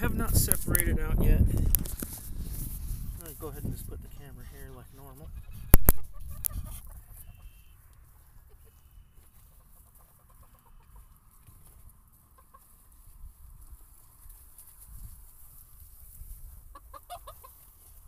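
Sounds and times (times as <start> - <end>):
chickens clucking softly: 4.4 - 13.2, 16.5 - 18.0.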